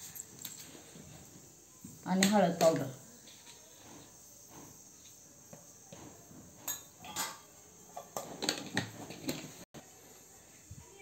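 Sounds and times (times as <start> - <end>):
steel kitchenware clinking: 6.6 - 8.3.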